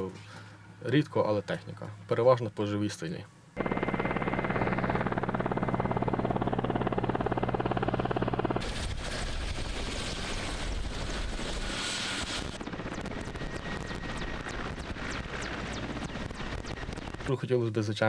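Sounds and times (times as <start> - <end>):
turbine hum: 3.6 - 17.3
helicopter rotor chop: 3.6 - 17.4.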